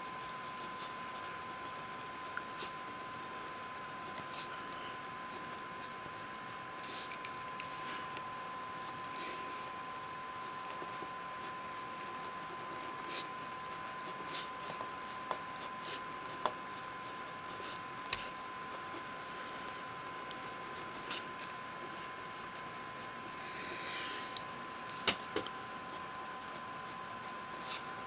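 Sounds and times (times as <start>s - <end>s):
pen scratching on paper: 10.4s - 19.1s, 26.4s - 27.9s.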